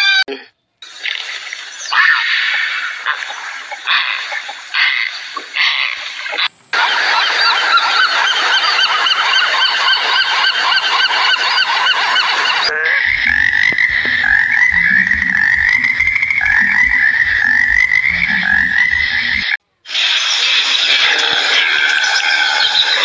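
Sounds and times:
honking bird calls: 0.9 - 19.5
tree frog calling: 0.9 - 19.6
rapid low pulsing: 10.3 - 19.6.

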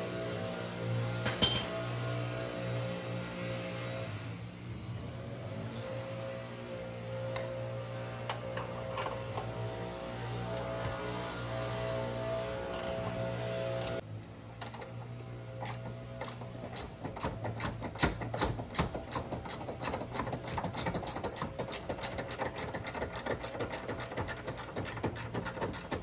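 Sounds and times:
hand ratchet clicking: 12.7 - 13.0, 14.6 - 15.0, 15.6 - 26.0.

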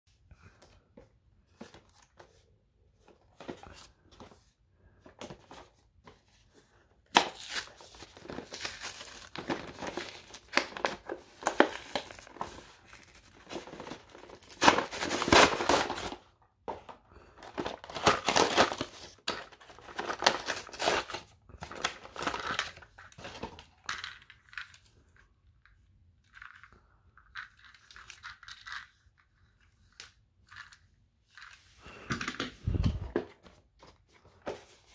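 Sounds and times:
cardboard tearing and crinkling: 7.1 - 16.2, 17.6 - 23.4.

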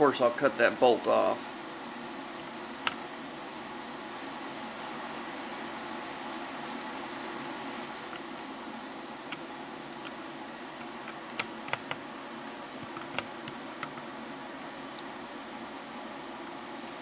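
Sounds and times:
welder cooling fan whirring: 0.0 - 17.0.

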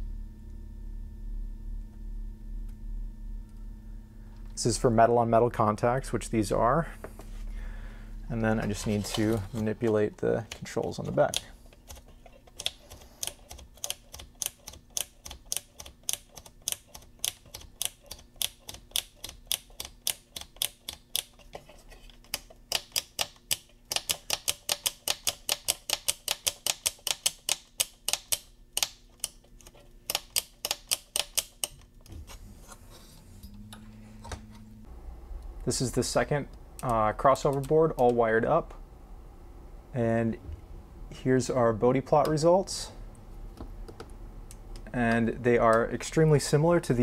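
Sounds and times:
faint hum: 0.0 - 22.8, 27.4 - 47.0
rotary switch clicking: 9.8 - 21.3, 22.3 - 31.8.

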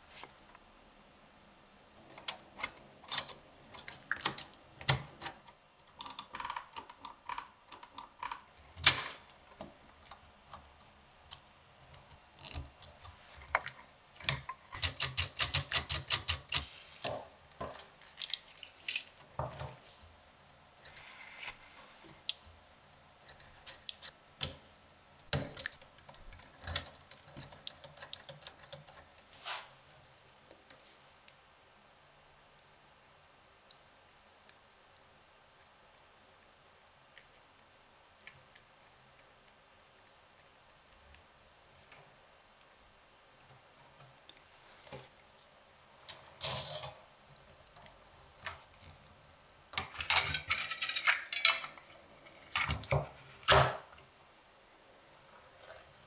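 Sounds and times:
typewriter mechanism clicking: 14.8 - 16.7.

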